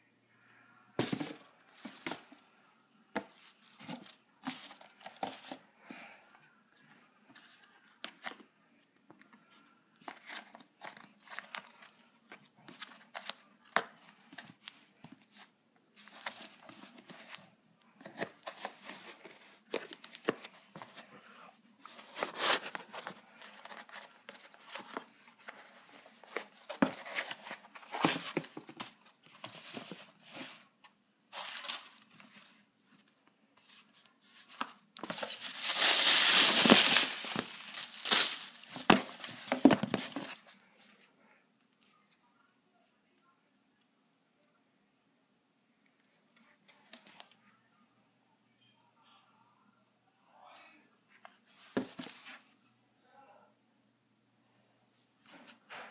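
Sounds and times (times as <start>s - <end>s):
tissue paper rustling and crinkling: 31.3s - 32.6s, 33.6s - 40.5s.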